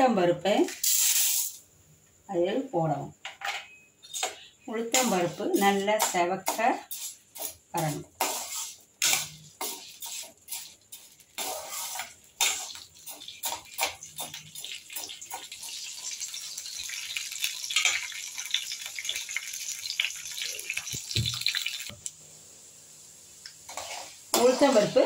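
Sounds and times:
lentils frying in hot oil: 0.0s - 1.6s, 4.7s - 25.0s
steel spoon scraping pan: 4.0s - 15.8s, 23.7s - 25.0s.

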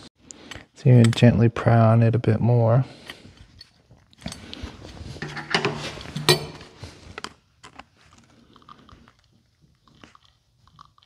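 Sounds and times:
metal tool scraping metal: 5.2s - 6.8s.

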